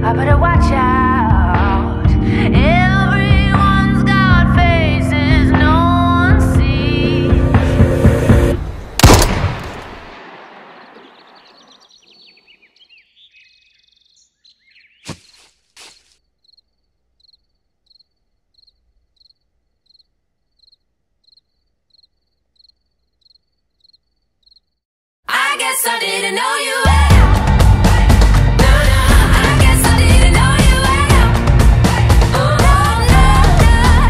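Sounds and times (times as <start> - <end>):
music: 0.0 - 8.6, 25.3 - 34.0
revolver gunshot: 9.0 - 11.4.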